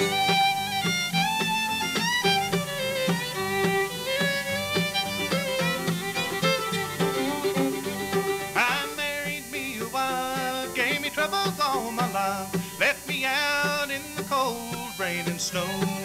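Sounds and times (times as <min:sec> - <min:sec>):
fiddle with sliding notes: 0:00.0 - 0:16.0
strummed acoustic guitar: 0:00.0 - 0:16.0.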